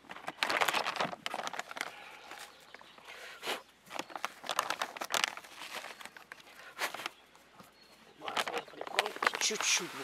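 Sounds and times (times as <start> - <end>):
plastic bag crinkling: 0.0 - 2.8, 3.8 - 7.2, 8.2 - 10.0.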